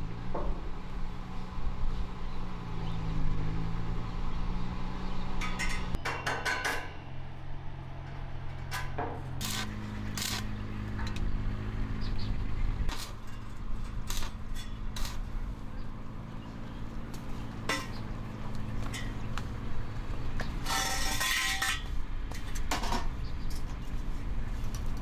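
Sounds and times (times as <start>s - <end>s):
metal pipe clinks and knocks: 5.4s - 7.0s.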